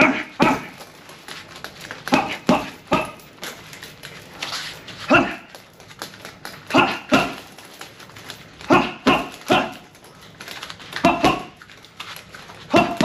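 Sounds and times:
sharp exhaled grunts: 0:00.0 - 0:00.8, 0:08.6 - 0:09.9
gloves striking heavy bag: 0:00.0 - 0:12.0, 0:12.6 - 0:13.0.

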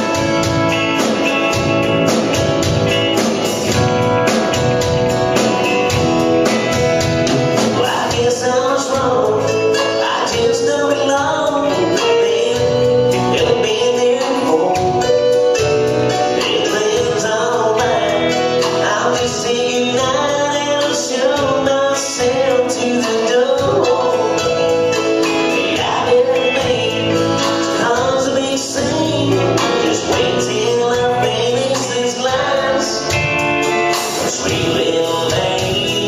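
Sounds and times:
acoustic guitar: 0:00.0 - 0:36.0
man singing country song: 0:04.3 - 0:36.0.

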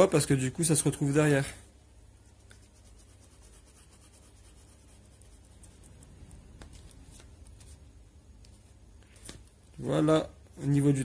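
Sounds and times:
pen scratching on paper: 0:02.4 - 0:06.1.

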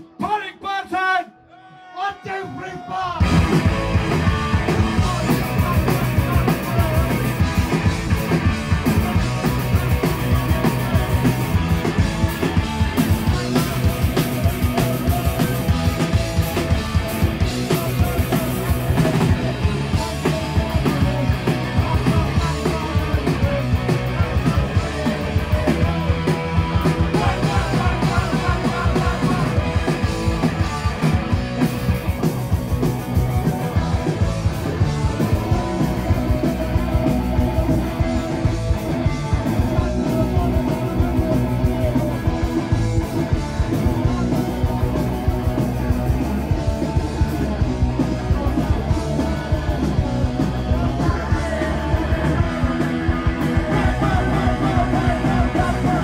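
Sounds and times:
person singing: 0:01.5 - 0:32.2, 0:33.0 - 0:56.0
bass guitar: 0:03.0 - 0:56.0
drum kit beat: 0:03.2 - 0:56.0
electric guitars: 0:03.2 - 0:56.0.

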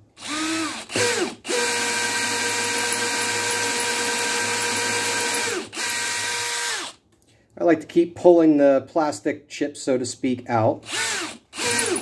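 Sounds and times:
cordless drill whining: 0:00.2 - 0:07.0, 0:10.8 - 0:12.0.

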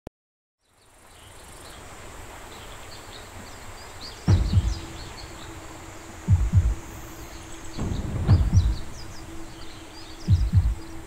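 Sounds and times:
bird chirps: 0:02.5 - 0:11.0
low steady hum: 0:04.2 - 0:11.0
deep low pulsing hits: 0:04.3 - 0:07.2, 0:07.8 - 0:09.4, 0:10.3 - 0:10.8.

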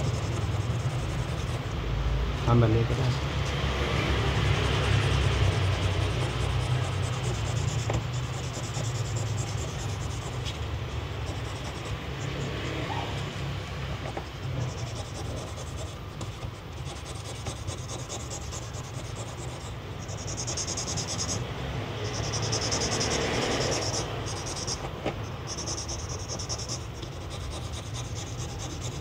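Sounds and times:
sandpaper rubbing on plastic: 0:00.0 - 0:01.8, 0:04.1 - 0:21.4, 0:22.1 - 0:29.0
low steady hum: 0:00.0 - 0:02.4.

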